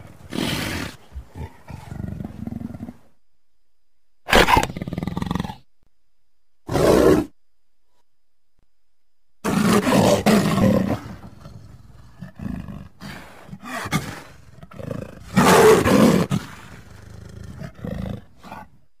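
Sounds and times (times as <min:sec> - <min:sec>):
leopard hoarse calls: 0:09.4 - 0:18.8.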